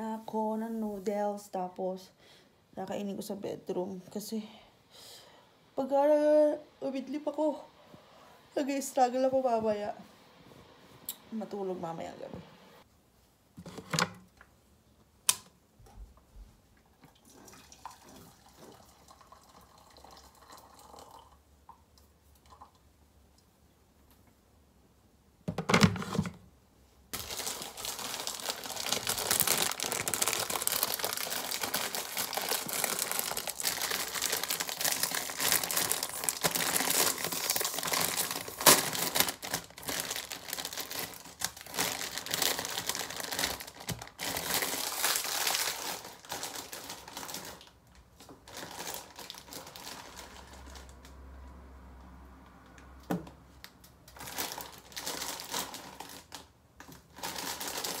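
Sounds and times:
plastic packet crinkling: 27.1s - 51.0s, 54.1s - 58.0s.

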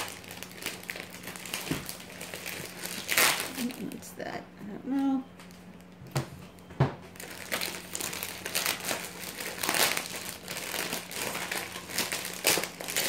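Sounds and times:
plastic bag crinkling: 0.0s - 4.1s, 7.1s - 13.0s.

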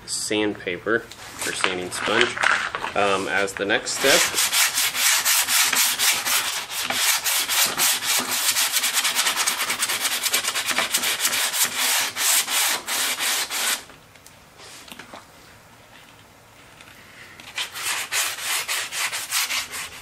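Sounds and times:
sanding sponge rubbing plastic: 3.1s - 13.9s, 17.6s - 20.0s.

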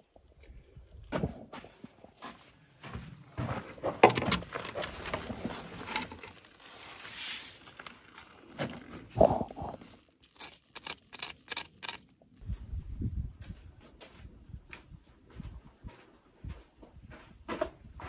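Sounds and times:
gritty crunching: 1.0s - 12.4s
pencil scraping on stone: 9.2s - 12.0s.

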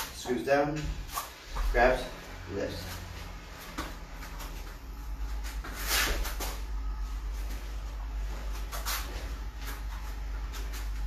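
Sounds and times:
steady low hum: 0.0s - 11.0s
bare feet scuffing on mats: 2.7s - 11.0s.

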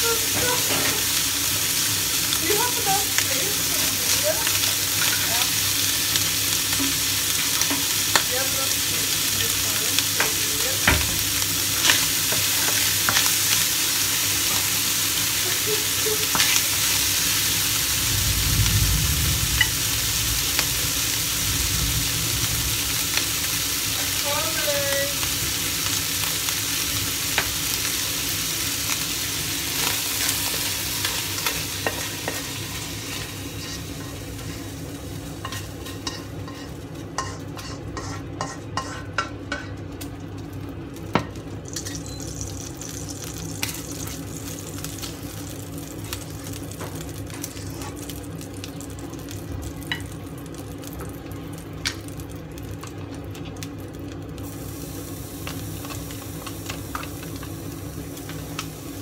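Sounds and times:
meat sizzling in a wok: 0.0s - 59.0s.

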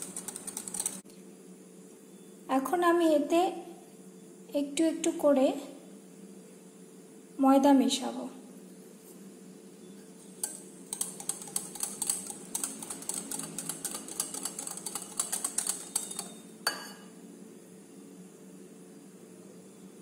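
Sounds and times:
whisk clicking against glass bowl: 0.0s - 1.0s, 10.4s - 16.8s.

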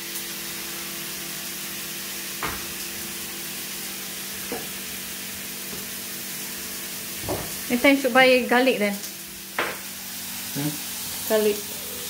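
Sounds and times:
steak sizzling in a pan: 0.0s - 12.0s
knocks in a kitchen cabinet: 2.4s - 2.7s, 7.2s - 7.6s, 9.6s - 9.8s.

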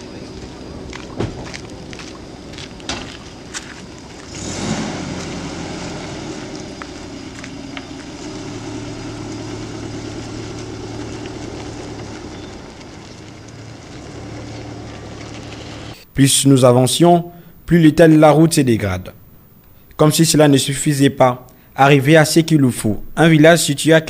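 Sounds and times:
minivan engine: 0.0s - 16.0s
tyres on gravel: 0.0s - 21.2s.

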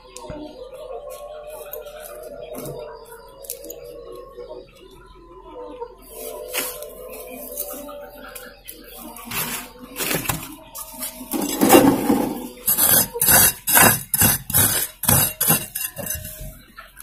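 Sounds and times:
scrapes and knocks of potting: 9.2s - 16.6s.

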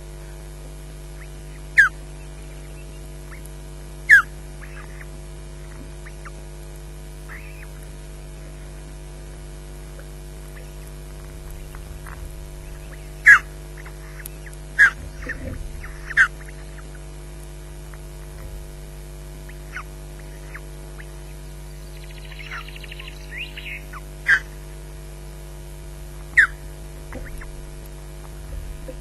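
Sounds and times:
electrical hum: 0.0s - 29.0s
rapid chittering: 1.0s - 29.0s
osprey whistled calls: 1.2s - 3.4s, 4.0s - 5.1s, 7.3s - 7.8s, 10.4s - 17.1s, 19.4s - 24.6s, 26.3s - 27.6s.

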